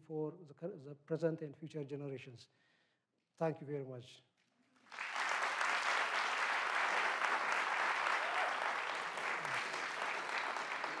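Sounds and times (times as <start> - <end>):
audience applauding: 4.8 - 11.0.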